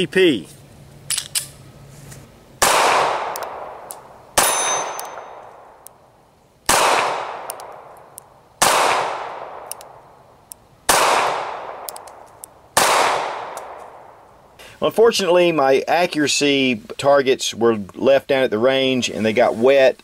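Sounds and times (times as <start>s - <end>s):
pistol shots with echo: 2.6s - 5.9s, 6.7s - 10.0s, 10.9s - 14.2s.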